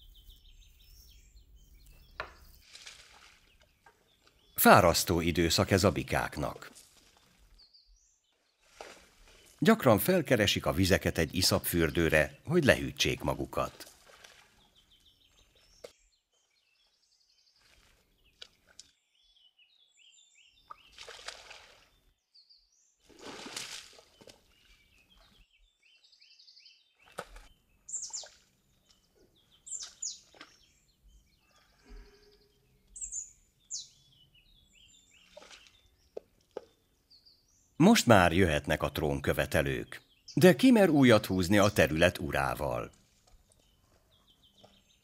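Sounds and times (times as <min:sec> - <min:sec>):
small birds chirping: 0:00.0 - 0:45.0
splashing in mud water: 0:02.4 - 0:04.6, 0:05.8 - 0:07.6, 0:08.6 - 0:10.3, 0:13.0 - 0:16.0, 0:17.5 - 0:19.1, 0:20.6 - 0:22.1, 0:23.0 - 0:25.4, 0:27.0 - 0:29.0, 0:29.7 - 0:30.9, 0:35.2 - 0:36.7.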